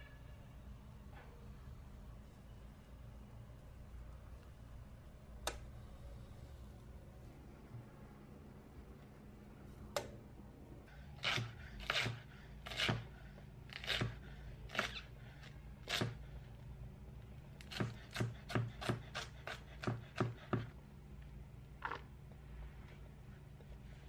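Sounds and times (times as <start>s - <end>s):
knife chopping on wooden board: 17.7s - 20.7s.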